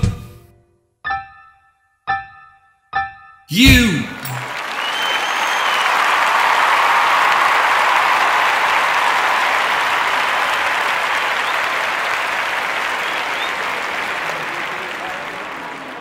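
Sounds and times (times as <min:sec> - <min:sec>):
audience applauding: 0:03.6 - 0:16.0.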